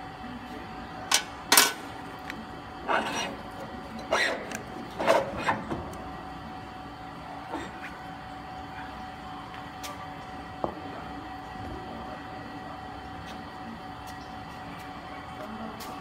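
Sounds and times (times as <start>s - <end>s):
steady machine hum: 0.0s - 16.0s.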